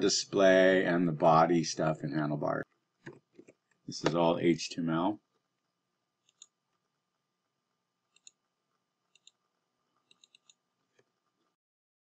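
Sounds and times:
mouse and keyboard clicks: 6.2s - 6.5s, 8.2s - 8.4s, 9.1s - 9.4s, 10.1s - 10.6s.

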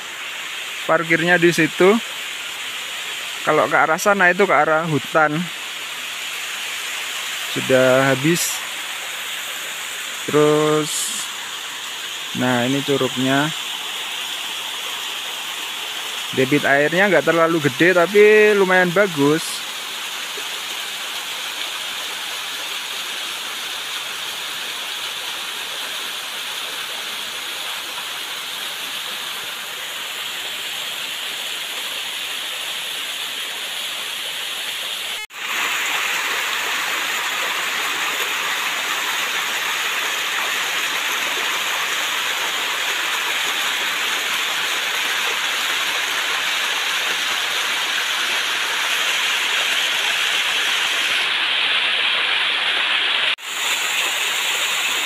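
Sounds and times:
small waterfall rushing: 0.0s - 55.0s.

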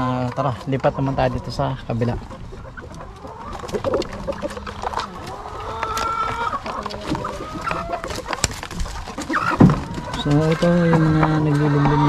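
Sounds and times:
chickens clucking: 0.0s - 12.0s
scattered clicks and knocks: 5.8s - 12.0s.

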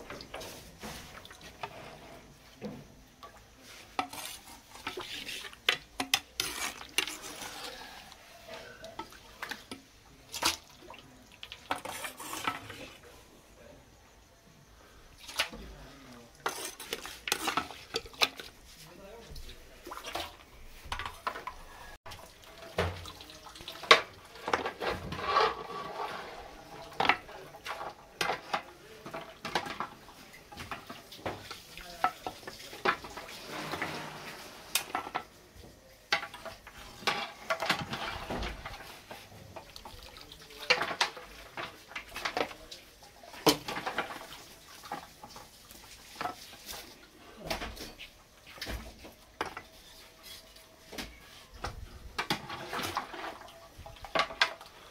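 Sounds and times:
metal ladles clinking on pot: 3.8s - 10.8s, 16.4s - 18.5s
liquid sloshing: 15.2s - 35.2s, 36.2s - 47.0s.

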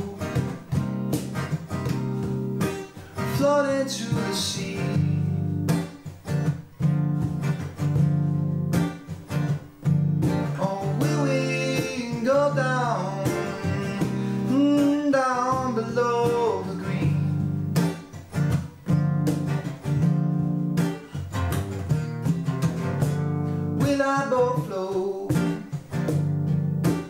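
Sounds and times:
man singing: 0.0s - 0.8s, 3.2s - 5.4s, 10.4s - 17.5s, 23.8s - 25.8s
acoustic guitar strumming: 0.0s - 27.0s.

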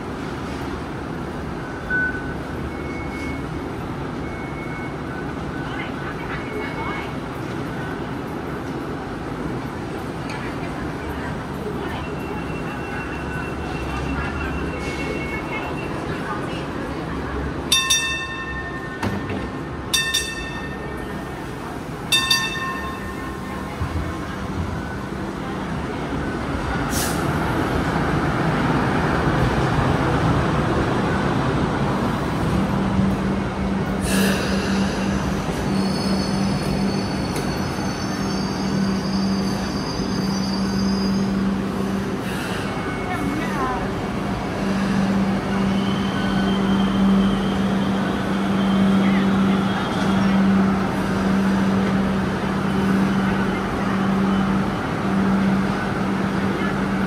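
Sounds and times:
light rail rumble: 0.0s - 57.0s
train bell double ding: 17.7s - 21.0s, 22.1s - 23.4s.

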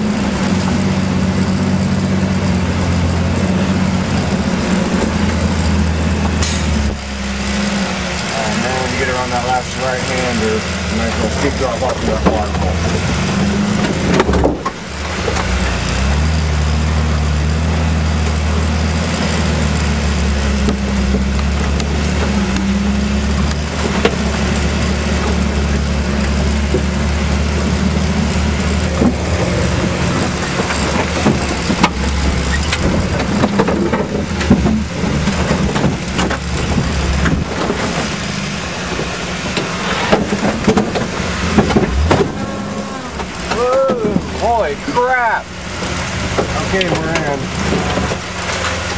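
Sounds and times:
engine running under load: 0.0s - 48.9s
vehicle knocks and rattles: 11.1s - 16.1s, 20.4s - 45.2s, 45.8s - 48.9s.

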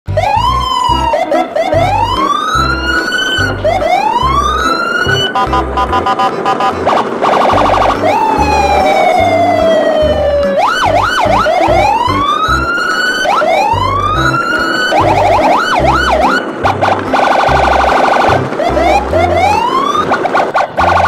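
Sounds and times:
emergency siren wailing and yelping: 0.1s - 21.0s
thumping music beat: 0.1s - 21.0s.

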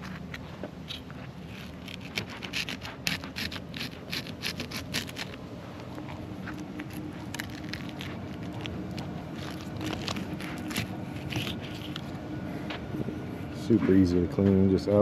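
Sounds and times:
knife scraping through fish scales: 0.0s - 5.4s, 6.5s - 12.1s.

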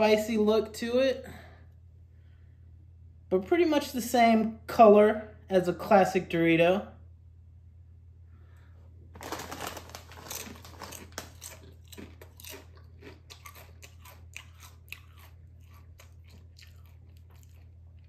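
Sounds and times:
chip being bitten: 9.2s - 18.0s
crisp chewing crunches: 9.2s - 18.0s.

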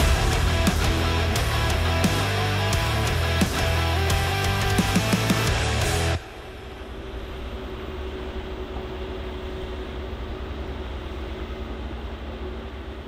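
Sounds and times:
diesel construction machinery running: 0.0s - 13.0s.

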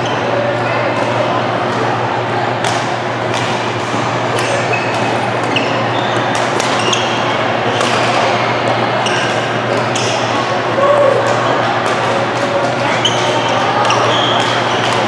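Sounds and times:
sports hall din: 0.0s - 15.0s
rackets hitting shuttlecock: 2.6s - 10.5s, 11.2s - 15.0s
shoes squeaking on floor: 4.5s - 7.3s, 9.0s - 10.3s, 13.0s - 14.8s.

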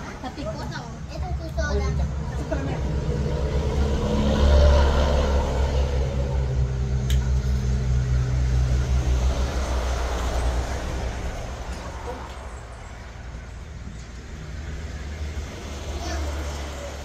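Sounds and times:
vehicle engine running: 0.0s - 12.6s.

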